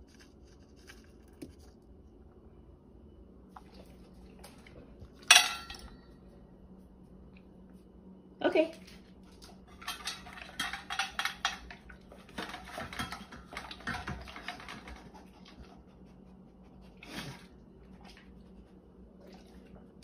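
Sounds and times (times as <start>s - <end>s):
dog crunching food in metal bowl: 9.3s - 15.2s.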